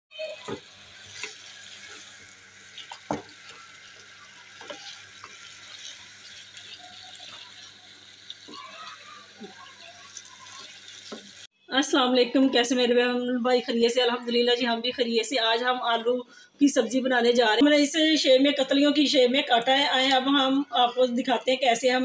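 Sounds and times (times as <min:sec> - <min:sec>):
potatoes sizzling in oil: 0:00.2 - 0:11.5.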